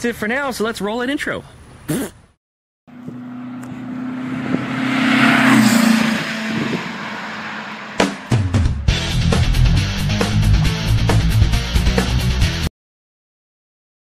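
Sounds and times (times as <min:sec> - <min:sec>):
vehicle engine passing by: 0:02.9 - 0:09.6
rock music with guitar: 0:07.9 - 0:12.7.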